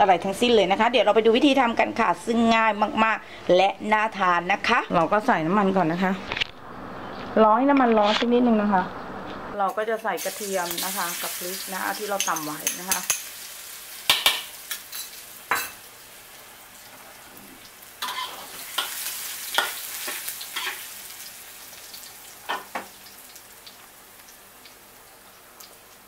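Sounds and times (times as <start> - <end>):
garlic sizzling in hot oil: 9.7 - 26.0
metal spatula scraping a wok: 18.0 - 20.8.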